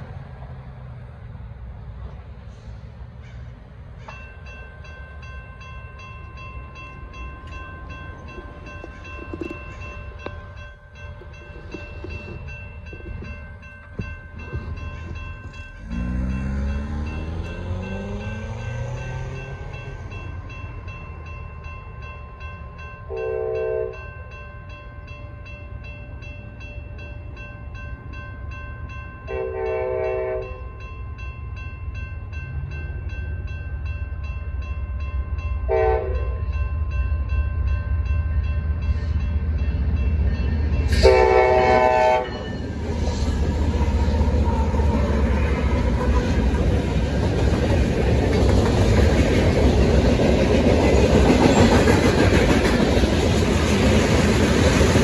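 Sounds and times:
locomotive rumble: 0:00.0 - 0:22.6, 0:32.0 - 0:55.0
crossing bell ringing: 0:03.2 - 0:55.0
train air horn blasts: 0:23.1 - 0:24.0, 0:29.3 - 0:30.6, 0:35.7 - 0:36.5, 0:40.9 - 0:42.4.

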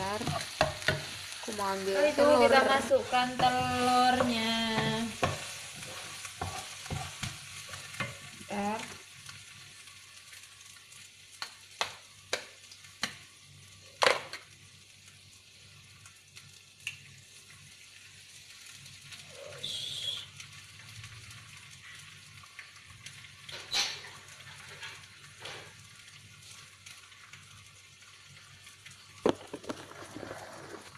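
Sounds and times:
paste sizzling in hot oil: 0:00.0 - 0:30.9
eggs tapped against pan: 0:11.4 - 0:13.2.

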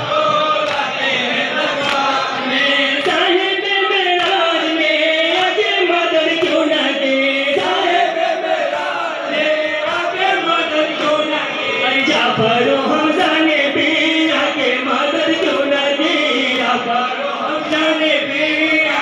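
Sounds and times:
crowd chanting: 0:00.0 - 0:19.0
men singing a lament: 0:00.0 - 0:19.0.

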